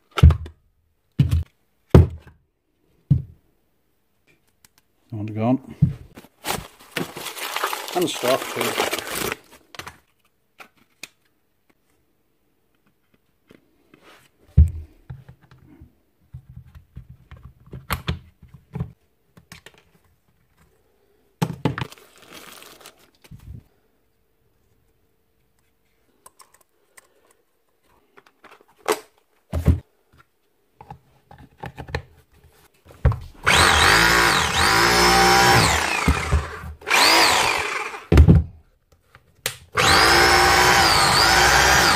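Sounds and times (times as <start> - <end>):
clicks and knocks of parts: 26.2 - 27.4
rotary hammer motor running: 33.4 - 38.1, 39.8 - 41.9.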